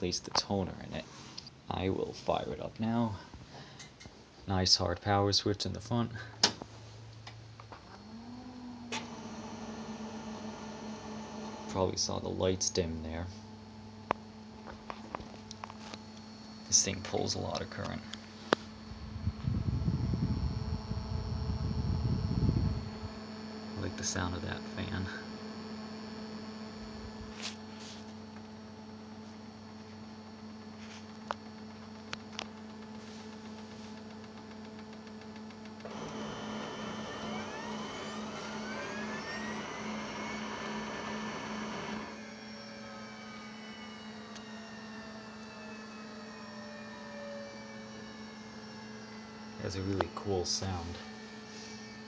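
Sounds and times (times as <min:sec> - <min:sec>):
printer cooling fan humming: 0:05.7 - 0:42.8
printer motor whining: 0:07.7 - 0:12.3, 0:20.0 - 0:52.0.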